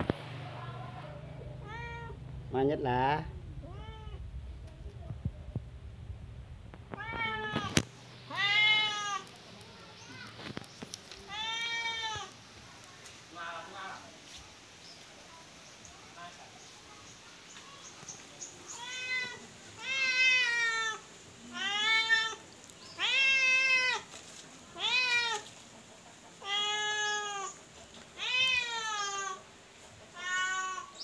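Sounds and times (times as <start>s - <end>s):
cat meowing: 1.6s - 2.2s, 3.6s - 4.2s, 6.9s - 9.3s, 11.2s - 12.4s, 18.7s - 22.4s, 23.0s - 24.1s, 24.7s - 25.5s, 26.4s - 27.6s, 28.2s - 29.4s, 30.1s - 31.0s.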